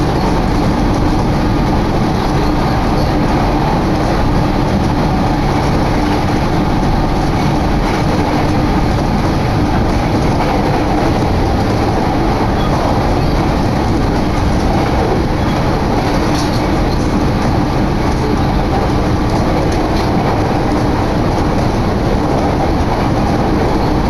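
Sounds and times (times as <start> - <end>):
train wheels on rails: 0.0 - 24.0.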